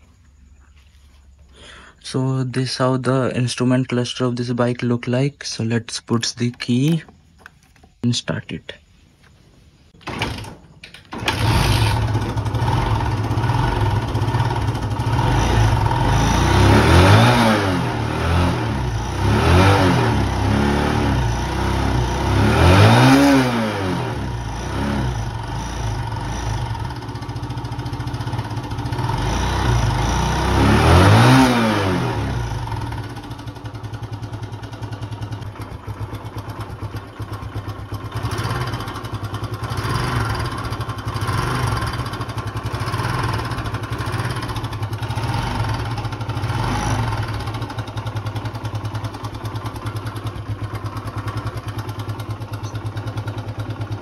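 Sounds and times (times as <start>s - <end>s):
motorcycle engine idling: 11.1s - 16.9s, 20.2s - 22.4s, 24.1s - 31.4s, 32.1s - 54.0s.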